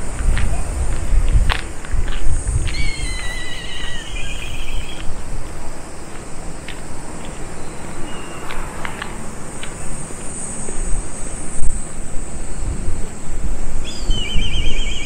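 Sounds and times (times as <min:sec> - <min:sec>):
wind rumbling on microphone: 0:00.0 - 0:15.0
high chirps: 0:02.6 - 0:05.1, 0:13.8 - 0:15.0.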